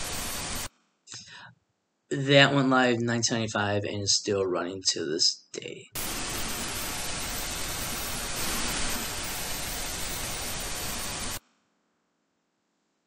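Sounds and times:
television static hiss: 0.0s - 0.7s, 6.0s - 11.4s.

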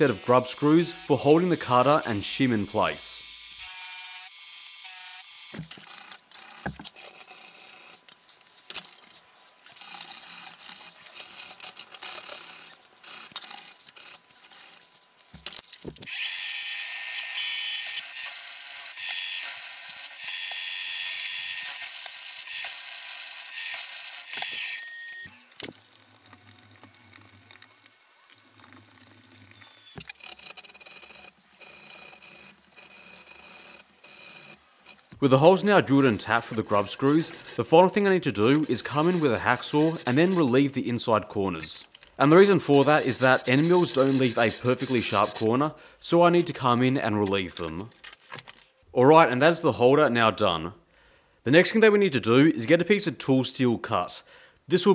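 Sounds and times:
milling machine cutting metal: 0.0s - 2.8s, 16.1s - 24.9s
hacksaw cutting metal: 16.1s - 24.9s, 35.6s - 40.6s, 42.7s - 45.5s.

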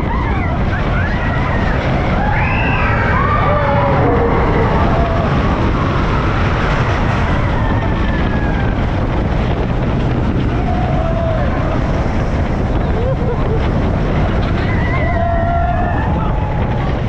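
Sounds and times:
people shrieking: 0.0s - 9.0s, 10.4s - 12.1s, 14.4s - 17.0s
roller coaster rumble: 0.0s - 17.0s
wind rushing over microphone: 0.0s - 17.0s.

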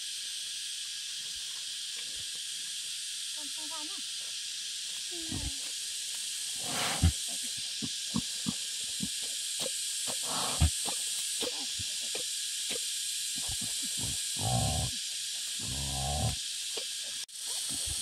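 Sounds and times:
steady high hiss: 0.0s - 18.0s
boar snorting: 6.6s - 16.4s, 17.6s - 18.0s.

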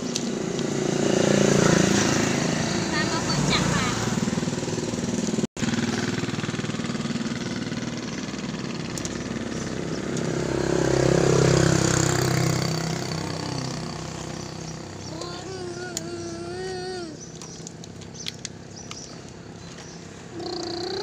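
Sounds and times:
pulsing engine-like drone: 0.0s - 16.7s.

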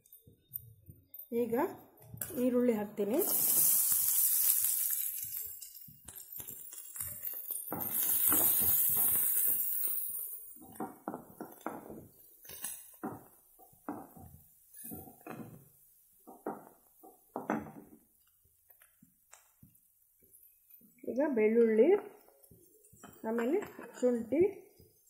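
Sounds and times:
onions sizzling in oil: 3.0s - 21.3s.

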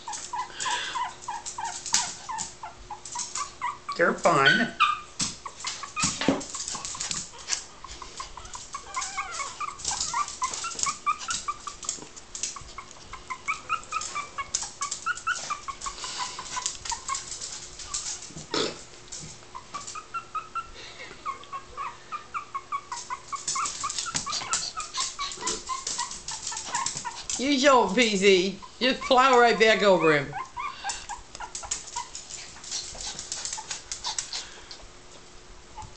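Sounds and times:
puppies whimpering: 0.0s - 18.5s, 19.5s - 34.8s
small clicks and scratches: 5.6s - 18.5s, 22.9s - 27.4s.

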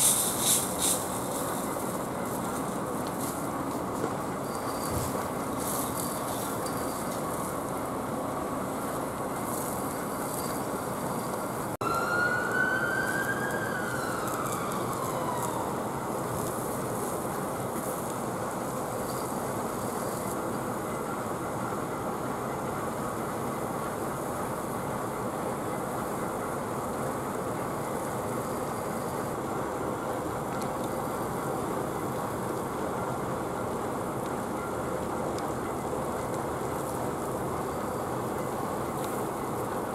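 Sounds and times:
hose jet spraying water: 0.0s - 3.4s
fire engine pump running: 0.0s - 39.9s
emergency siren wailing: 11.8s - 16.8s.

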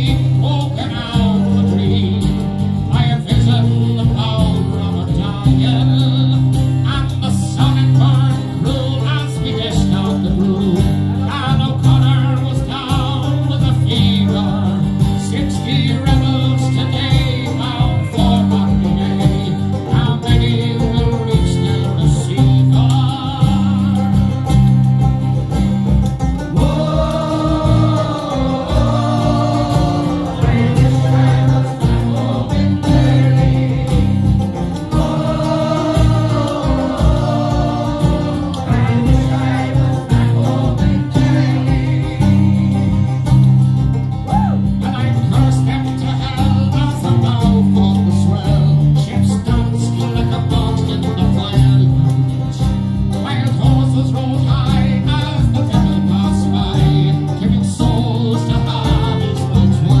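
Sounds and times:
acoustic guitar: 0.0s - 60.0s
steady bass line: 0.0s - 60.0s
fiddles: 7.9s - 44.9s.

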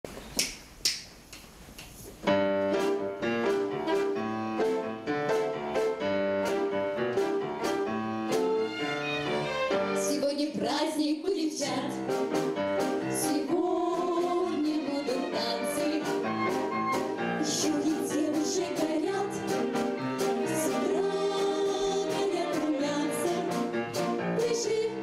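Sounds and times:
orchestra with piano and drum kit: 2.0s - 25.0s
girls singing: 13.2s - 16.3s, 17.3s - 23.7s, 24.3s - 25.0s.

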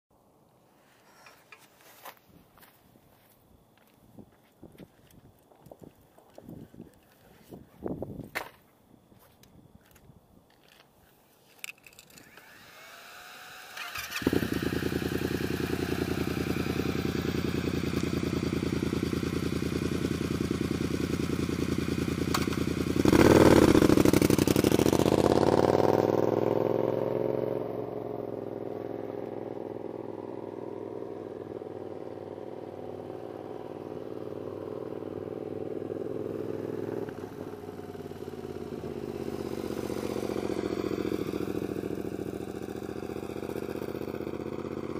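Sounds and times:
motorcycle engine idling and revving: 12.4s - 44.9s.

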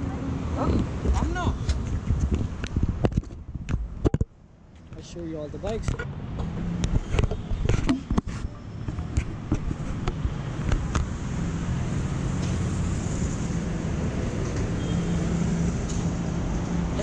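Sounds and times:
road traffic rumble: 0.0s - 17.0s.

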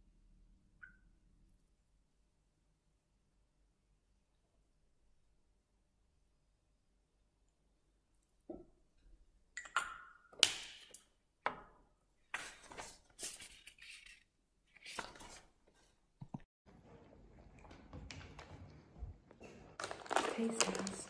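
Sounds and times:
small objects clicking and clinking: 19.8s - 21.0s.

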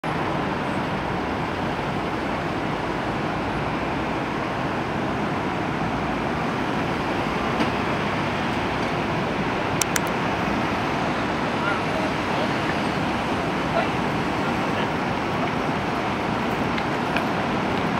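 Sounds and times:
street traffic noise: 0.0s - 17.9s
tram rolling on rails: 0.0s - 17.9s
sharp clicks: 9.8s - 10.2s.

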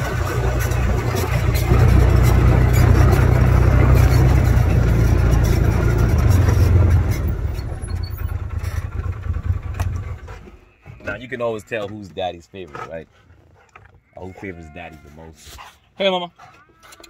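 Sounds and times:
engine droning: 0.0s - 13.0s.

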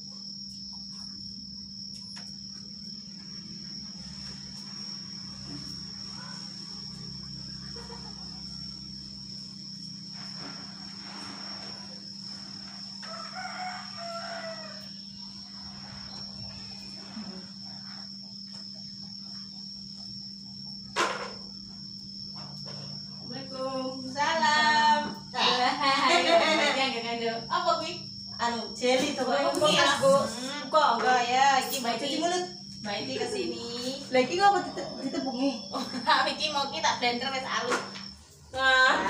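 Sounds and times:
rooster crowing: 6.0s - 10.4s, 12.0s - 17.7s.

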